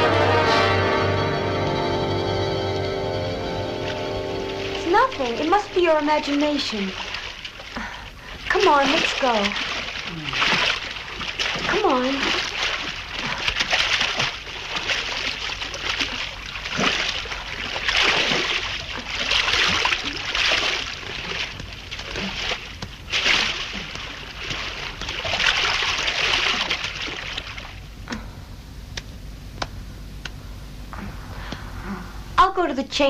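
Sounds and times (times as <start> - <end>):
swimmers splashing in pool water: 2.9 - 27.8.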